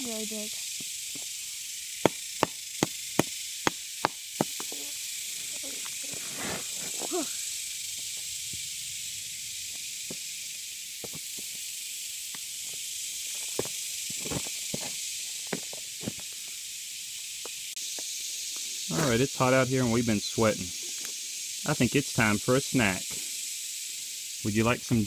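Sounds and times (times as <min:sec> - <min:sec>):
steady high hiss: 0:00.0 - 0:25.0
hammer striking rock: 0:02.0 - 0:04.8.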